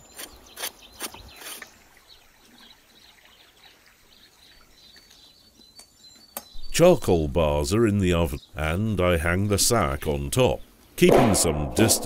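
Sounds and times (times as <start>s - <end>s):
knife scraping hide: 0.0s - 1.7s
soft bird chirps: 0.0s - 8.9s.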